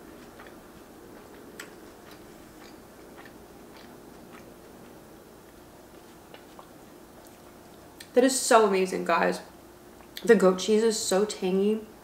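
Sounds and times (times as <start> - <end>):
person chewing food: 0.0 - 8.1
faint steady hum: 0.0 - 12.0.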